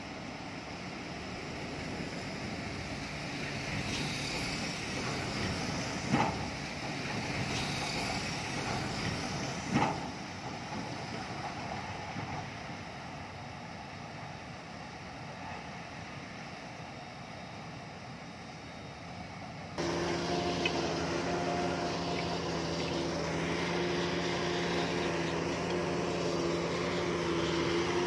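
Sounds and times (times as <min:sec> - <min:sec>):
diesel machinery drone: 0:00.0 - 0:11.0, 0:16.7 - 0:28.0.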